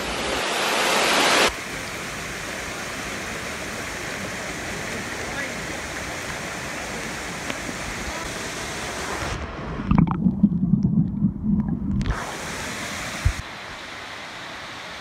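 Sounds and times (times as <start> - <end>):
waterfall rushing over rock: 0.0 - 9.4
muffled underwater rumbling: 9.6 - 12.2.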